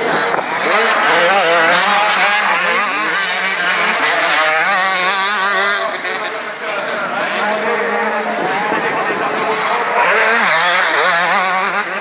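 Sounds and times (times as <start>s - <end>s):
motocross bikes revving: 0.0s - 12.0s.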